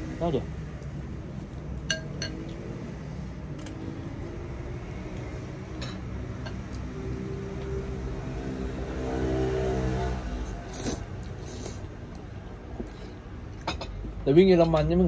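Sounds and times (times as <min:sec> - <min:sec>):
low background hum: 0:00.0 - 0:09.0, 0:10.4 - 0:15.0
tableware clinking: 0:01.8 - 0:02.5, 0:05.8 - 0:06.6.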